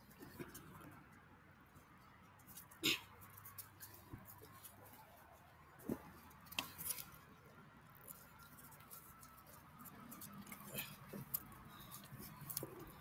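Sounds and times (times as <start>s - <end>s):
dogs crunching kibble: 8.0s - 13.0s.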